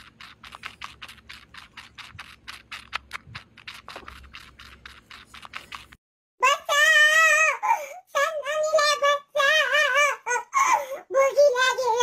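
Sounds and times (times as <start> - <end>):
kitten sucking and smacking: 0.0 - 6.0.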